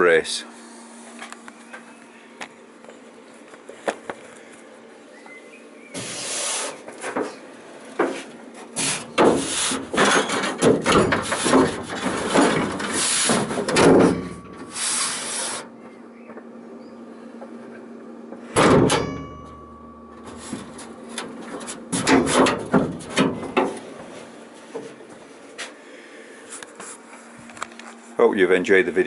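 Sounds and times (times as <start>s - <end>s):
faint steady hum: 0.0s - 29.0s
bonnet rubbing scraping and knocking: 8.0s - 15.7s.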